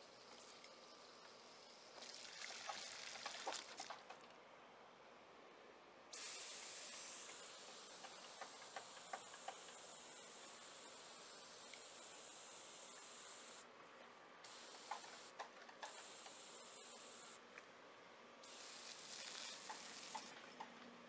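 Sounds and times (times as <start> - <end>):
garden hose spraying water: 1.4 - 4.0, 6.1 - 13.7, 14.4 - 17.4, 18.4 - 20.4.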